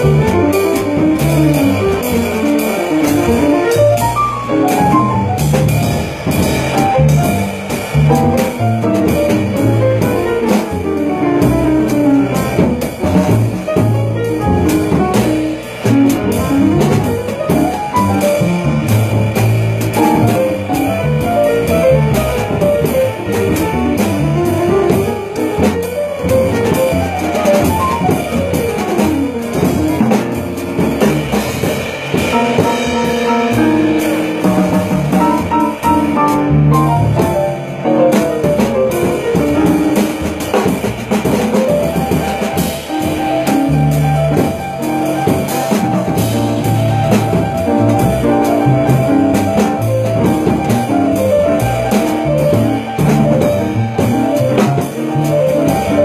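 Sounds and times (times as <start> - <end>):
drum kit: 0.0 - 56.0
jazz group playing: 0.0 - 56.0.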